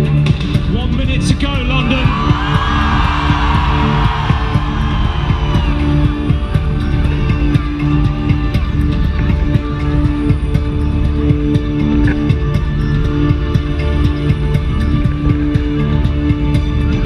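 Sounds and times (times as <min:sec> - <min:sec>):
loud music with guitar and bass: 0:00.0 - 0:17.0
crowd voices: 0:01.8 - 0:10.2.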